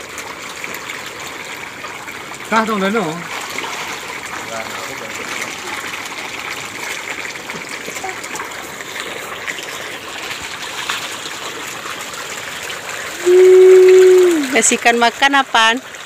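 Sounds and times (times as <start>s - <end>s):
fish splashing in water: 0.0s - 16.0s
loud held tone: 13.2s - 14.5s.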